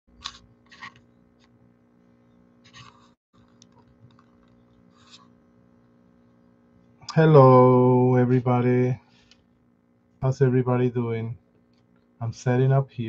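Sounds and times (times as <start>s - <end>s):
low steady hum: 0.2s - 13.0s
man greeting loudly: 7.1s - 9.0s.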